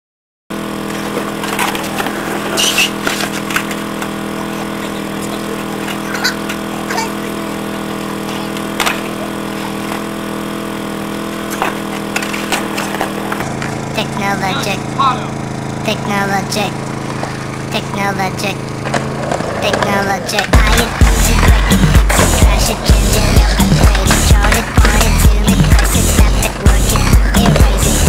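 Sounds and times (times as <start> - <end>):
steady hum: 0.5 - 28.0
skateboards clattering on concrete: 0.8 - 10.1, 11.4 - 13.8, 18.8 - 22.4, 23.3 - 28.0.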